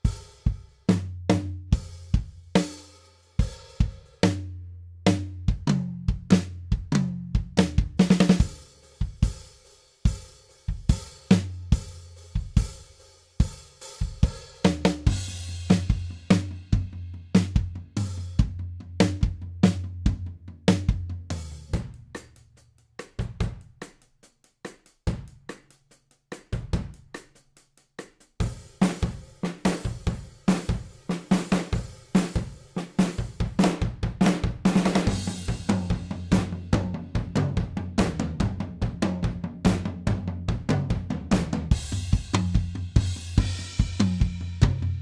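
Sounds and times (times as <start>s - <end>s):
acoustic drum kit rock groove: 0.0s - 45.0s.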